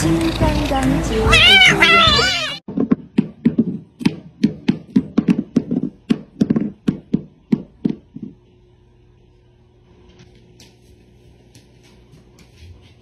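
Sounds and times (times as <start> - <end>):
faint hum: 5.6 - 13.0.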